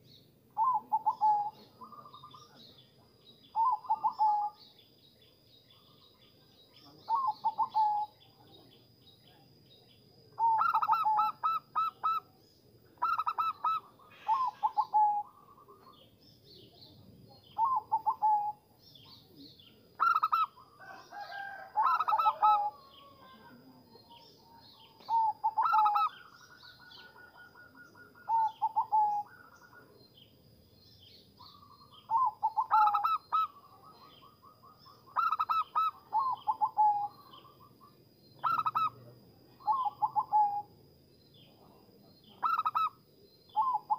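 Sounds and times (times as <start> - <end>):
dove cooing: 0.6 - 2.7, 3.5 - 4.6, 7.1 - 8.2, 10.4 - 16.1, 17.4 - 30.0, 31.4 - 37.7, 38.4 - 40.7, 42.3 - 43.9.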